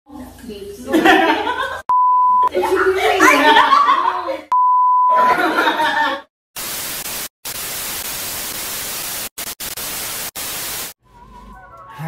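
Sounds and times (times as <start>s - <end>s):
people laughing: 0.9s - 1.8s, 2.5s - 4.5s, 5.1s - 6.3s
censor bleep tone: 1.9s - 2.5s, 4.5s - 5.2s
static hiss: 6.6s - 11.0s.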